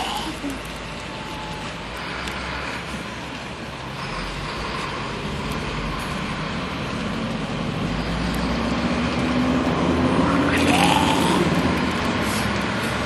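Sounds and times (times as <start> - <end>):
road traffic rushing past: 0.0 - 13.0.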